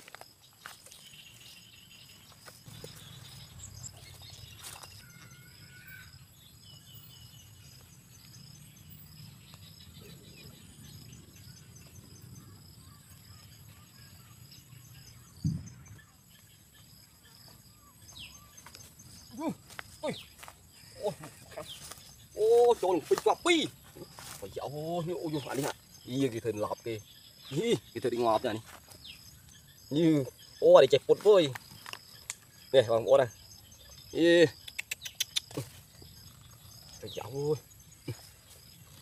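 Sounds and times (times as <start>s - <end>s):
faint bird chirps: 0.0s - 39.0s
insect buzz: 0.0s - 39.0s
dull thump: 15.4s - 15.8s.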